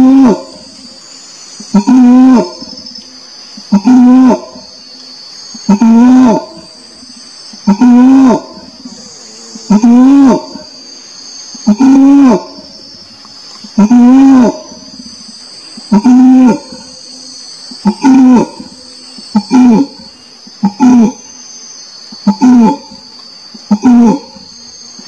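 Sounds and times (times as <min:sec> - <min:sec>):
orangutan moaning calls: 0:00.0 - 0:01.0, 0:01.6 - 0:02.9, 0:03.6 - 0:04.8, 0:05.5 - 0:10.9, 0:11.5 - 0:13.0, 0:13.6 - 0:21.4, 0:22.2 - 0:25.0
high insect drone: 0:00.0 - 0:25.0.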